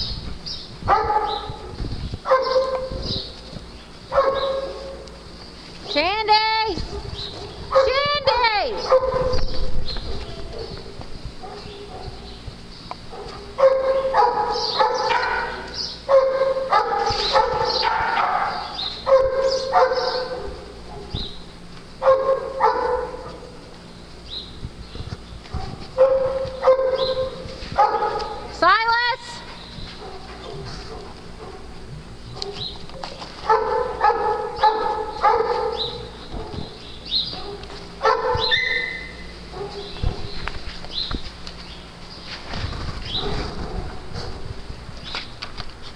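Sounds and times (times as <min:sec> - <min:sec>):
dog barking: 0:00.9 - 0:01.7, 0:02.3 - 0:03.1, 0:04.1 - 0:05.0, 0:06.8 - 0:08.0, 0:08.7 - 0:10.8, 0:11.4 - 0:12.3, 0:13.1 - 0:21.3, 0:22.0 - 0:23.6, 0:25.5 - 0:28.5, 0:30.0 - 0:31.8, 0:32.4 - 0:40.4.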